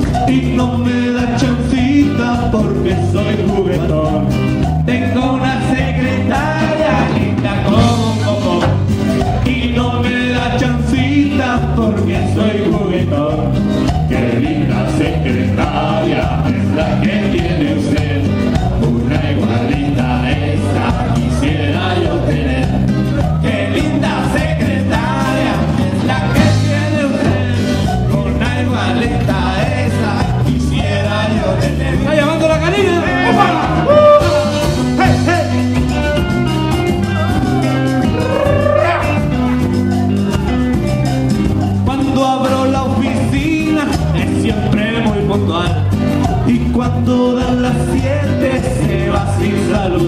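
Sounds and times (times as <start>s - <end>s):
live band playing dance music: 0.0s - 50.0s.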